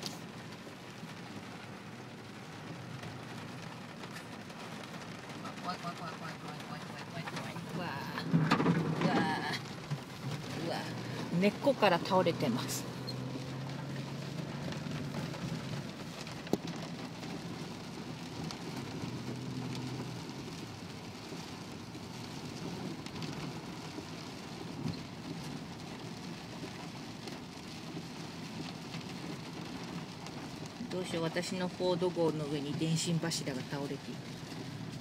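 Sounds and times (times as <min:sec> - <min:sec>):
low engine hum: 0:00.0 - 0:35.0
rain and tyres on wet road: 0:00.0 - 0:35.0.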